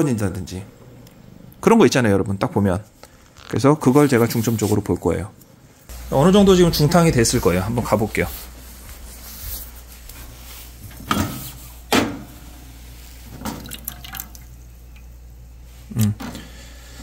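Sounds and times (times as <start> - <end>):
water dripping and splashing: 13.3 - 15.1.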